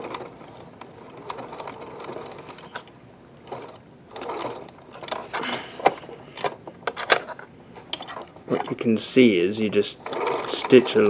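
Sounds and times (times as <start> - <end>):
sewing machine running: 0.0 - 5.6, 9.6 - 11.0.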